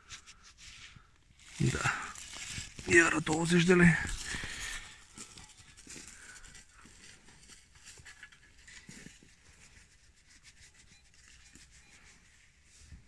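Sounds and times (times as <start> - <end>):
glove rustling and scratching: 0.0 - 13.0.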